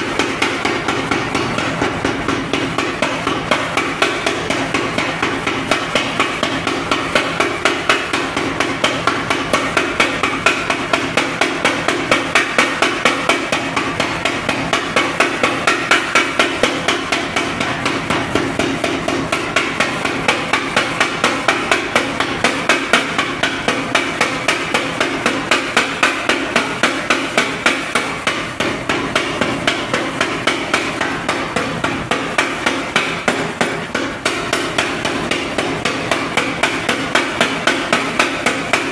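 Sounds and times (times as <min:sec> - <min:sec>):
power hammer pounding hot steel: 0:00.0 - 0:38.9.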